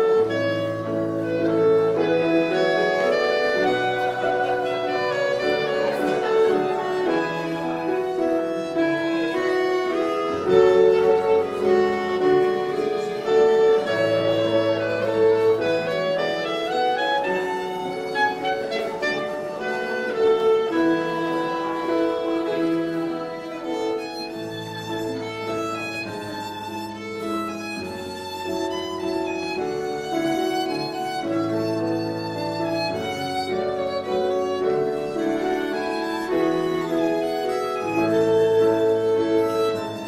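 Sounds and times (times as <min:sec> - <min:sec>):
fiddle dance tune: 0:00.0 - 0:40.0.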